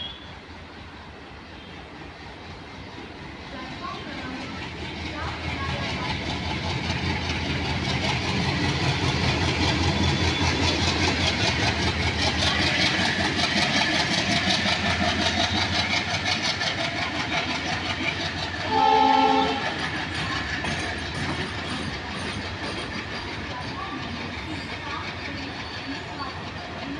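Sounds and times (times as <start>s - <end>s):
diesel locomotive chugging: 0.0s - 26.9s
train horn blast: 18.6s - 19.6s.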